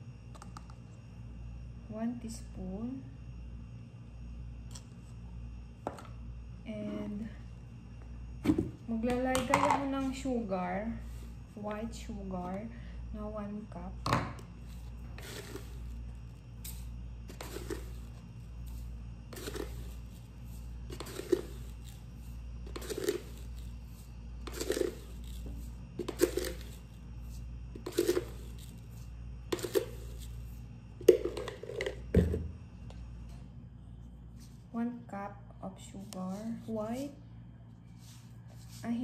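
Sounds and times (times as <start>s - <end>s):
sugar scooping scrape: 14.6s - 32.0s.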